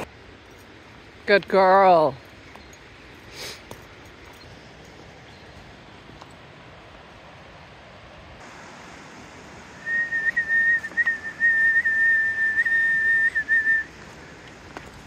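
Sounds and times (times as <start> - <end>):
high whistle: 9.8 - 13.9.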